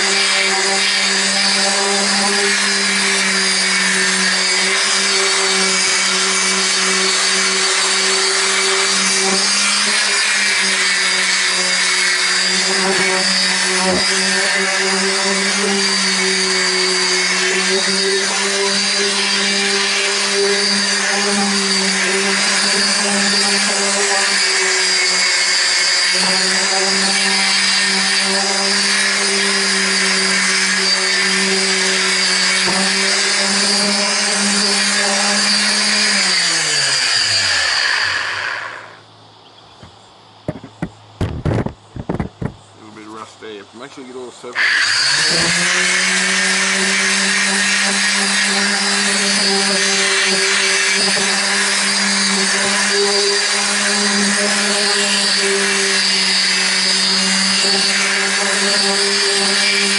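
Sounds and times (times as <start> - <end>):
orbital sander on paint: 0.0 - 39.1, 40.5 - 59.9.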